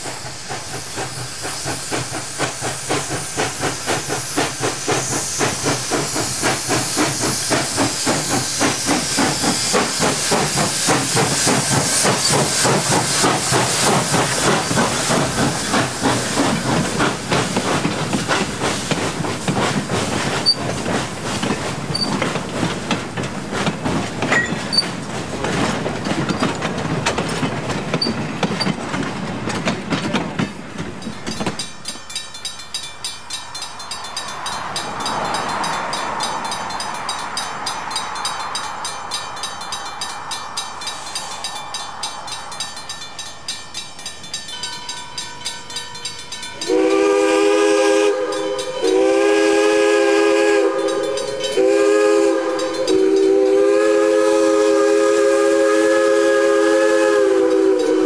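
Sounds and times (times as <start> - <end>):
steam hissing: 0.0 - 58.0
train wheels clicking on rails: 0.0 - 58.0
crossing bell ringing: 30.2 - 47.2, 48.1 - 49.4, 50.6 - 53.5.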